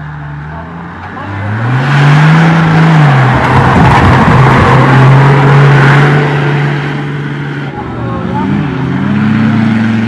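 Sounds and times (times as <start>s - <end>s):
suv engine revving: 0.0s - 10.0s
loud rushing noise: 1.8s - 7.8s.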